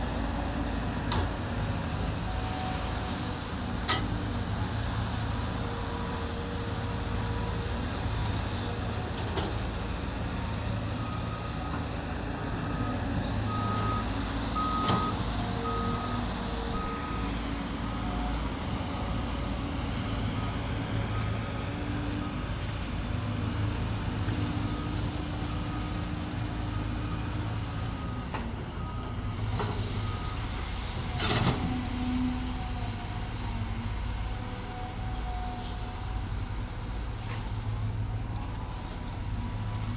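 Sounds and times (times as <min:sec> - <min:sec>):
excavator engine under load: 0:00.0 - 0:39.9
reversing alarm beeping: 0:12.7 - 0:17.3, 0:26.7 - 0:31.5.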